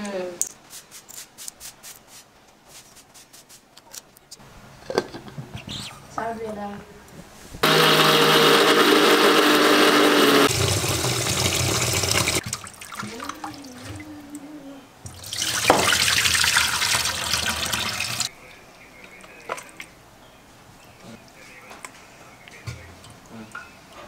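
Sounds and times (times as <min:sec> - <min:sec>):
tap water running into steel bowl: 0:10.5 - 0:14.0, 0:15.1 - 0:18.3.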